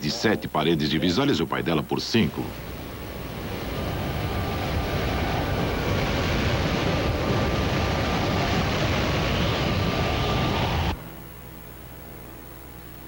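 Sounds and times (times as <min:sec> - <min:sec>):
loud rushing tornado wind: 0:02.3 - 0:11.0
wind buffeting microphone: 0:02.5 - 0:11.0.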